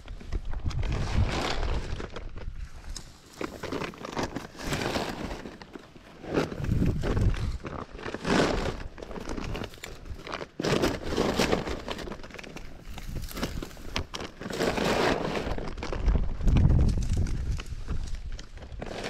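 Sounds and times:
dry grass rustling: 0.0s - 19.0s
plastic bag crinkling: 3.2s - 19.0s.

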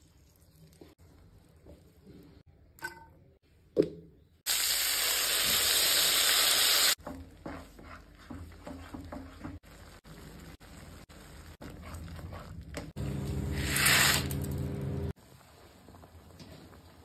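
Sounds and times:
spatula scraping puree in pan: 7.0s - 10.0s.

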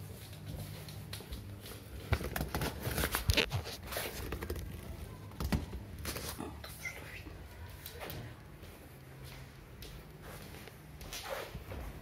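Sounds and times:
handling noise near microphone: 0.0s - 6.4s.

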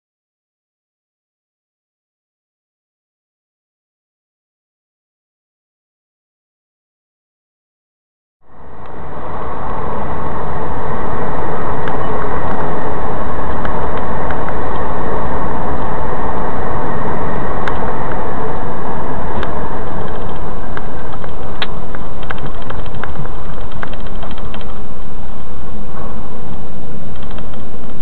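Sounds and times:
vehicle road and engine noise: 8.4s - 28.0s
faint clicks: 27.1s - 28.0s.

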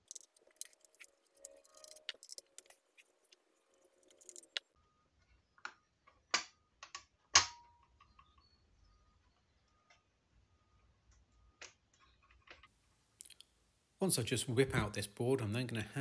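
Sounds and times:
small plastic clicks: 5.6s - 8.5s.

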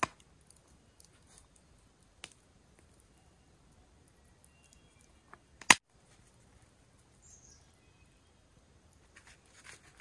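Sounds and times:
faint bird chirps: 2.9s - 5.6s, 7.1s - 8.6s.

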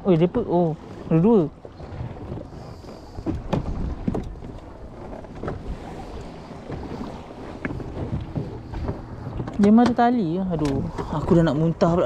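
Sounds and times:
sea noise: 0.0s - 12.0s
wind: 0.0s - 12.0s
short knocks on boat: 3.2s - 11.6s.

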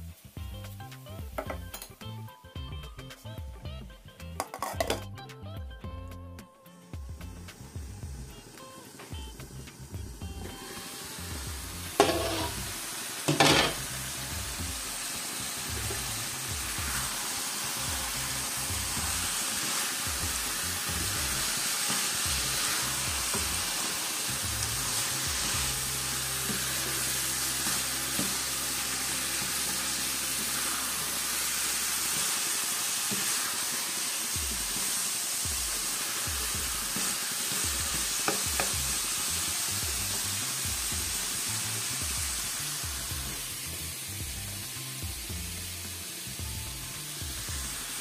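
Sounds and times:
food sizzling in a wok: 0.0s - 48.0s
glass lid clatter: 4.4s - 5.0s
spatula stirring and scraping: 12.0s - 12.7s, 15.7s - 17.3s, 17.9s - 24.0s.

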